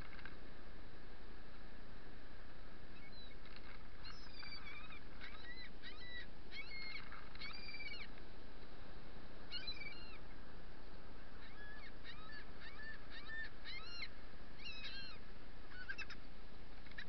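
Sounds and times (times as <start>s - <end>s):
gulls squawking: 9.5s - 10.2s, 11.4s - 16.2s.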